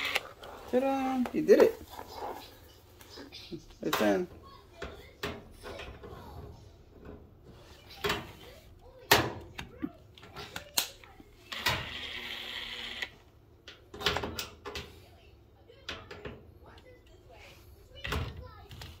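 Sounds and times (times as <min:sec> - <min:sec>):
impact driver running: 0:00.0 - 0:00.9.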